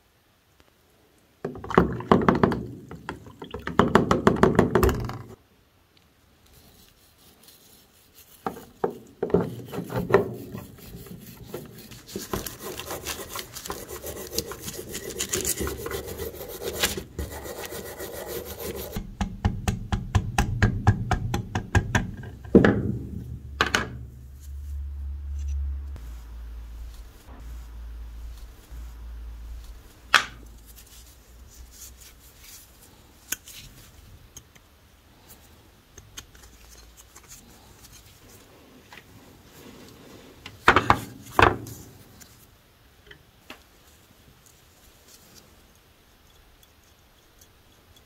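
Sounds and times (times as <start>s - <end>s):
scraping: 6.7s - 19.0s, 22.2s - 34.1s
sharp knocks: 19.0s - 24.3s.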